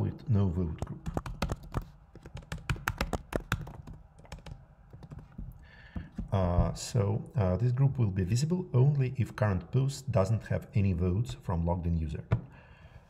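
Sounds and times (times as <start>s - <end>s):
computer keyboard typing: 0.8s - 5.3s.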